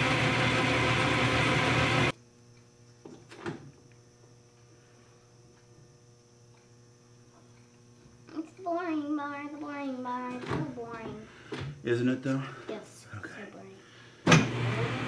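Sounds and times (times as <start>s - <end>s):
metal lathe cutting: 0.0s - 2.1s
faint steady hum: 2.1s - 14.3s.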